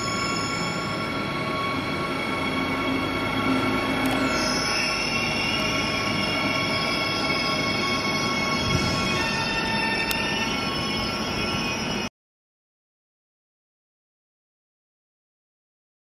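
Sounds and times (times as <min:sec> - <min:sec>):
train running gear rumble: 0:00.0 - 0:12.1
train wheels squealing on rails: 0:00.0 - 0:12.1.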